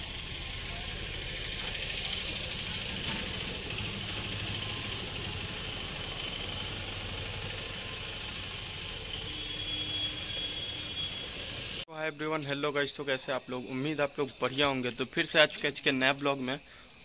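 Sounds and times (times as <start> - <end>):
engine idling: 0.0 - 11.8.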